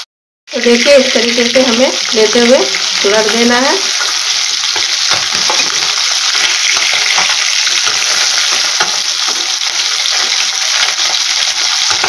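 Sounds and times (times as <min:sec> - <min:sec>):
fish sizzling in oil: 0:00.0 - 0:12.0
steel spatula scraping pan: 0:03.9 - 0:11.2.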